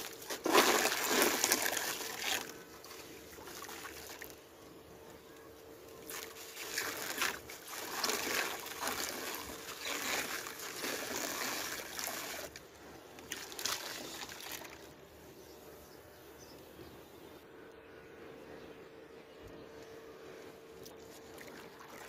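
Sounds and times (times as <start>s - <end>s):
sand trickling into water: 6.1s - 12.6s.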